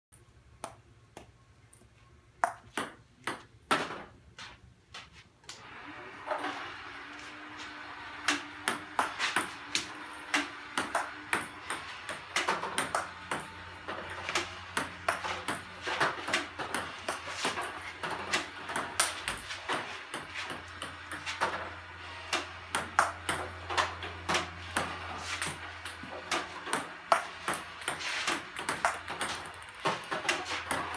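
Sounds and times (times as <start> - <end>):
faint low hum: 0.2 - 3.3.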